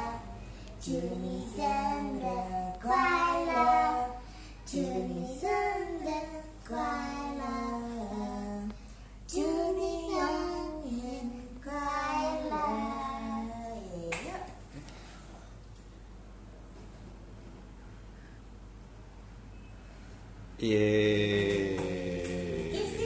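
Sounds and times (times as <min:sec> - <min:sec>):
boy singing unaccompanied: 0:00.0 - 0:08.7, 0:09.3 - 0:13.6.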